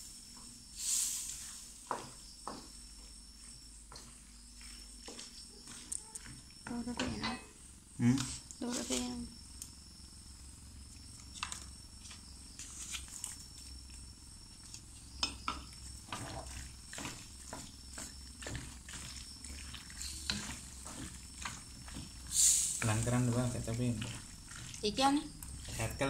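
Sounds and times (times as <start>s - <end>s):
spatula scraping metal wok: 16.0s - 26.0s.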